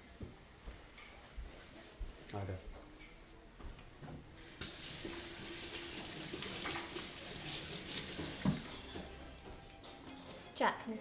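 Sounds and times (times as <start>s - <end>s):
tap running into a sink: 4.6s - 9.1s.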